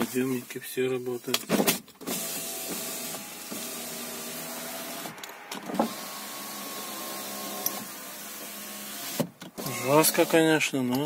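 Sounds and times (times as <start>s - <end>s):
electric window motor whining: 2.0s - 10.4s.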